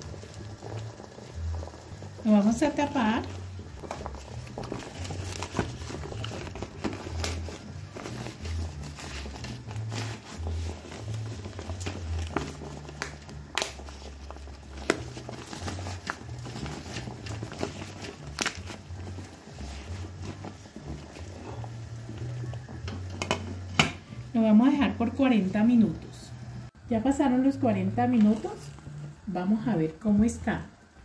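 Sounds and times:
leaves crinkling and crackling: 3.0 - 22.7.

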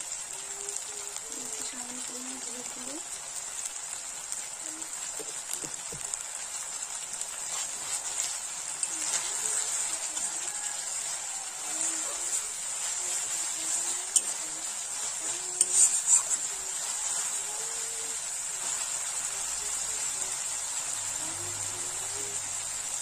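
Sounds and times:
masala frying and sizzling: 0.0 - 23.0
spatula scraping and knocking pan: 7.5 - 17.6.

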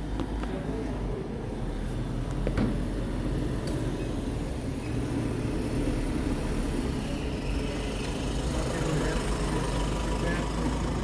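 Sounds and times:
bus engine rumbling: 0.0 - 11.0.

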